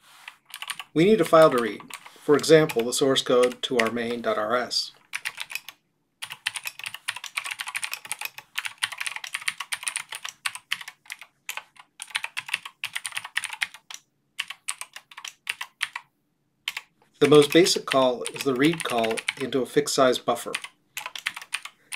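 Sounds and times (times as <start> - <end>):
typing on computer keyboard: 0.4 - 2.8, 3.4 - 4.2, 5.1 - 16.1, 16.7 - 19.6, 20.5 - 21.9.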